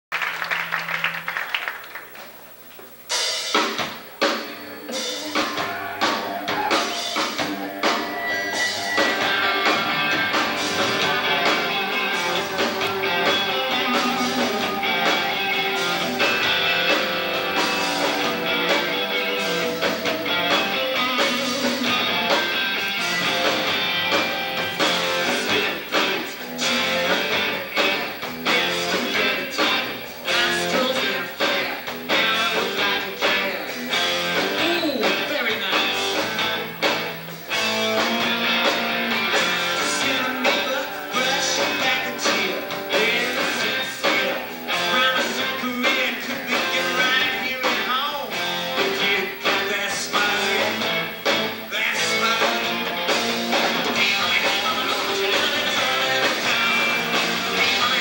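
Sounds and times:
rock band playing live: 2.0s - 58.0s
drum hits: 5.2s - 26.8s.

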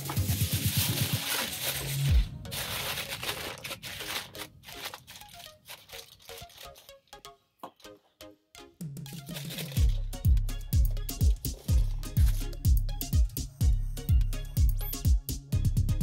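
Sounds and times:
aluminium foil crinkling: 0.0s - 7.2s, 9.1s - 10.0s, 11.3s - 12.6s
background music: 0.0s - 16.0s.

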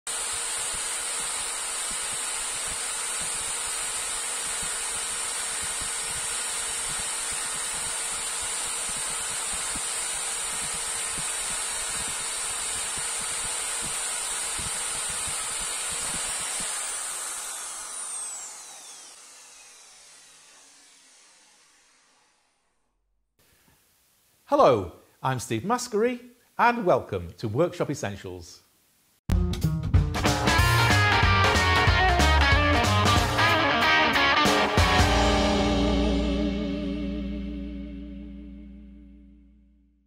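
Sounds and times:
electric drill boring into wood: 0.1s - 22.7s.

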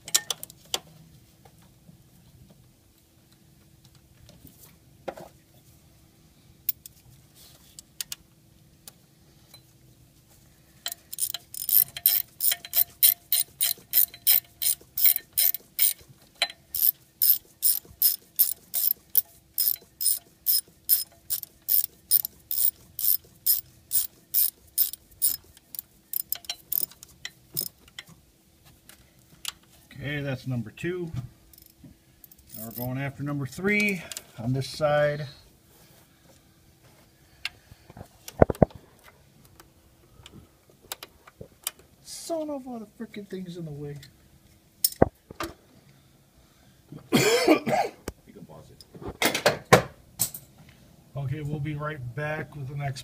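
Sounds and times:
ratchet wrench clicking: 10.9s - 27.0s, 27.6s - 27.8s, 32.5s - 32.9s.

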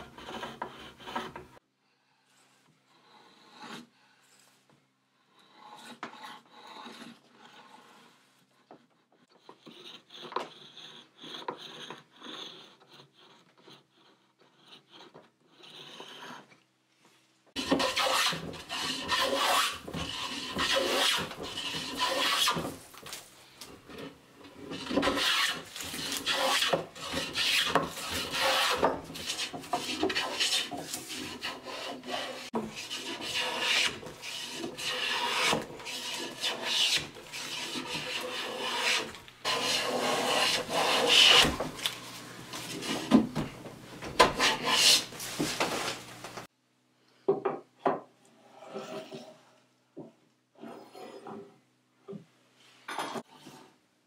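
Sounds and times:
hand plane shaving wood: 0.0s - 1.6s, 5.3s - 8.3s, 9.2s - 16.5s, 17.6s - 23.2s, 23.8s - 43.4s, 44.2s - 46.0s.

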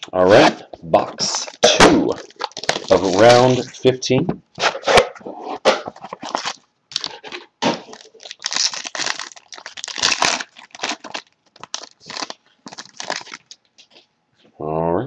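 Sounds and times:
plastic wrap crinkling and tearing: 1.2s - 3.8s, 5.9s - 14.0s.

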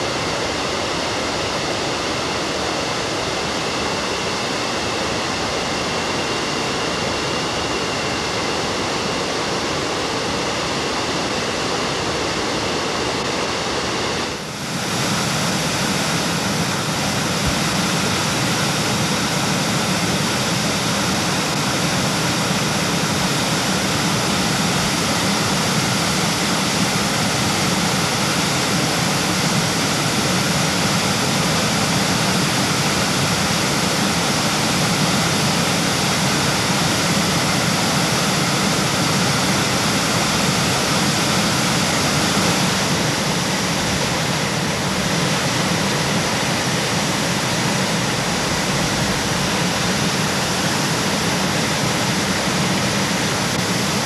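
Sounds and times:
waterfall rushing: 14.5s - 54.0s.

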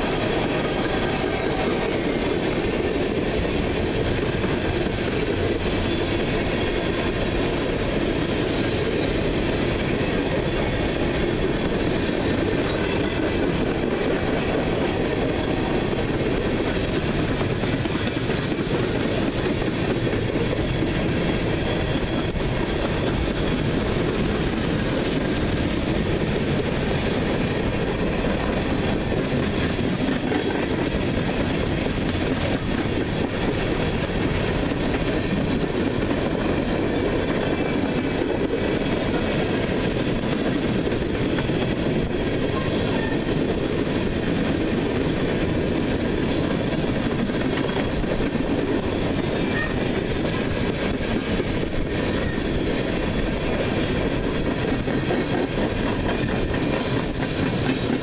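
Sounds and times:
steel wheels roaring on rails: 0.0s - 58.0s
wheelsets clickety-clack: 0.0s - 58.0s.

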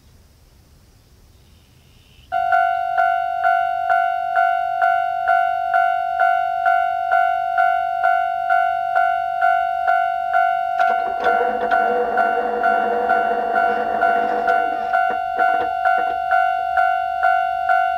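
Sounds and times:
level crossing warning bell: 2.3s - 17.9s.

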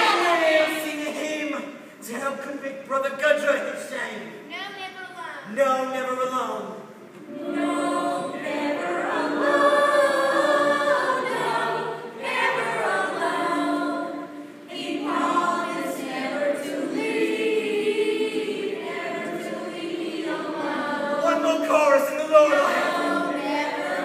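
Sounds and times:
choir singing unaccompanied: 0.0s - 1.2s, 7.2s - 24.0s.

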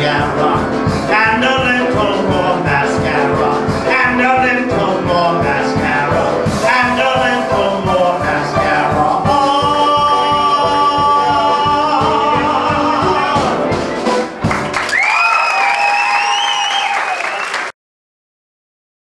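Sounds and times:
person singing: 0.0s - 14.1s
live band with steady beat: 0.0s - 16.2s.

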